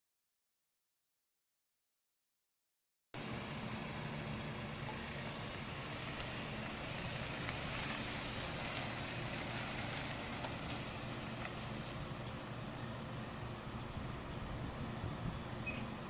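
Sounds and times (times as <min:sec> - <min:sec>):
car engine idling: 0:03.2 - 0:16.0
steady hiss: 0:03.2 - 0:16.0.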